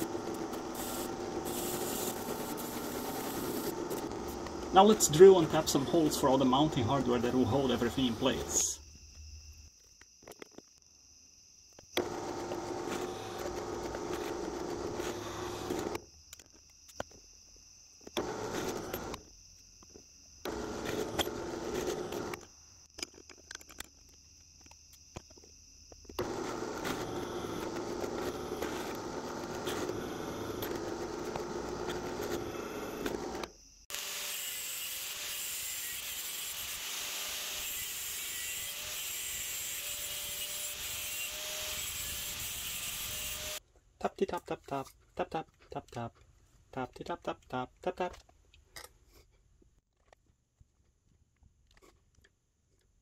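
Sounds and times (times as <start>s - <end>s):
drill press drilling steel: 18.2s - 19.2s, 20.5s - 22.4s, 26.2s - 43.6s
angle grinder cutting steel: 26.2s - 43.6s.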